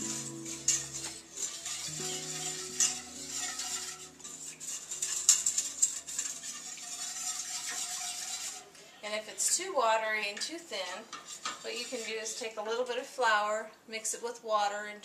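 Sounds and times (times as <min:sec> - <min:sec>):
whisk scraping a metal skillet: 0:00.0 - 0:08.8, 0:10.3 - 0:12.6
faint background music: 0:00.0 - 0:15.0.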